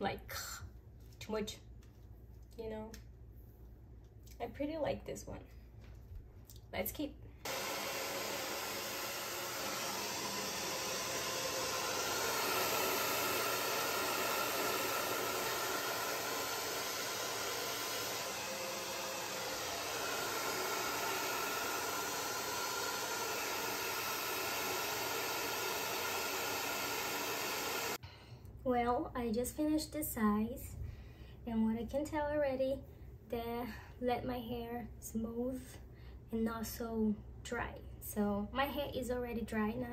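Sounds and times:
hair dryer blowing air: 0:07.4 - 0:28.0.

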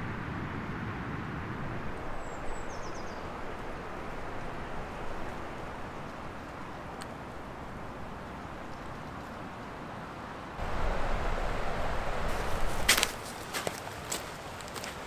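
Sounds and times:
strong wind rushing: 0:10.6 - 0:13.2.

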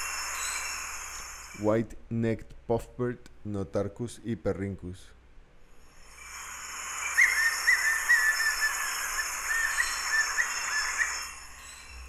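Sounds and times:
bird song of thin notes: 0:00.0 - 0:01.7, 0:06.0 - 0:12.0
high-pitched background hiss: 0:00.0 - 0:12.0.

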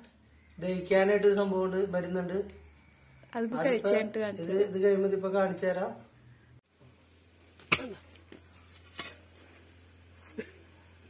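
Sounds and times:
pickaxe striking stony soil: 0:07.6 - 0:08.1.

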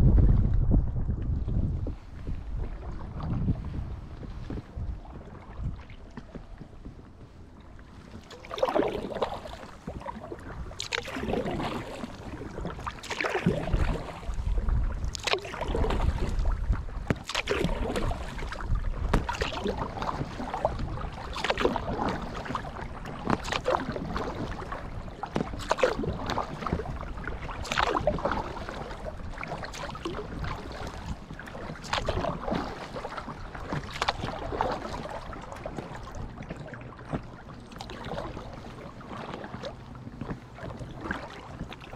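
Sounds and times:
kayak paddle splashing in water: 0:07.9 - 0:41.9.

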